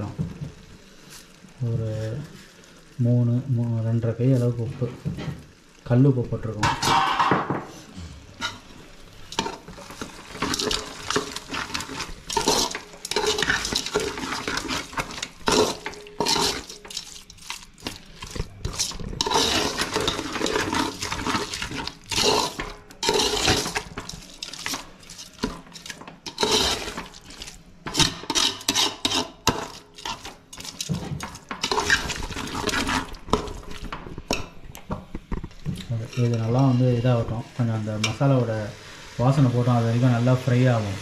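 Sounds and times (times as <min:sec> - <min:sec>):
metal ladle scraping a pot: 0:09.3 - 0:34.5.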